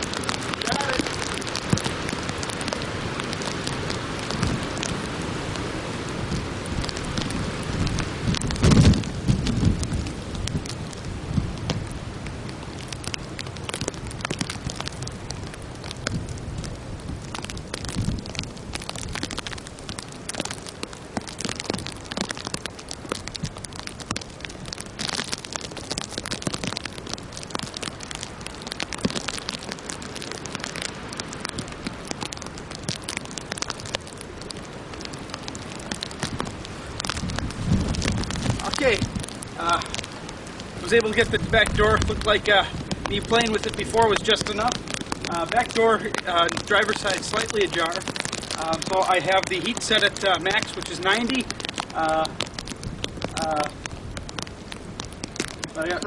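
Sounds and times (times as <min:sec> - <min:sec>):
sleet pattering on ice: 0:00.0 - 0:05.2, 0:17.3 - 0:40.2, 0:40.8 - 0:53.9
loud low thump: 0:08.6 - 0:09.4.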